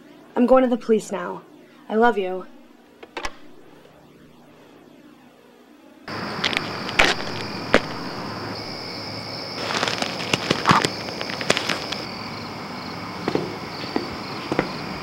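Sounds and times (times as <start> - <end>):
night insects chirring: 6.1 - 15.0.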